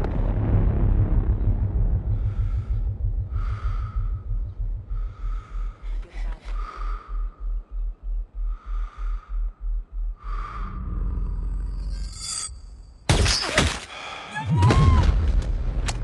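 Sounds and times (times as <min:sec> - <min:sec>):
heavy rumble: 0:00.0 - 0:13.1
low pulsing throb: 0:00.0 - 0:13.1
man breathing tensely: 0:01.5 - 0:12.0, 0:13.8 - 0:14.4.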